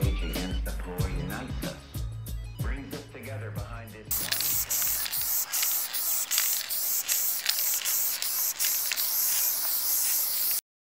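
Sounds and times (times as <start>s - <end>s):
spray paint can hissing bursts: 4.1s - 10.7s.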